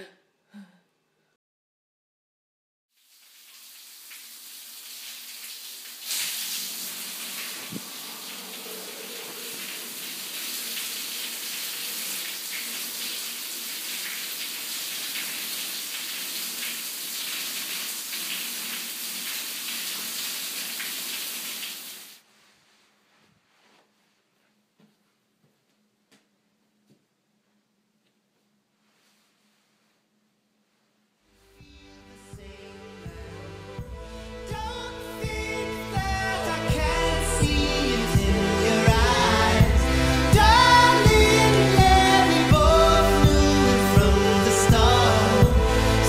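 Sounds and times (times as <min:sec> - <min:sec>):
shower spray running: 0:03.0 - 0:22.2.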